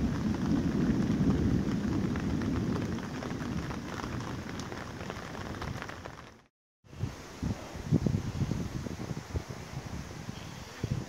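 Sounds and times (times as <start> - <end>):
distant thunder rumbling: 0.0 - 6.2
raindrops ticking on leaves: 0.0 - 6.5
light rain: 0.0 - 11.0.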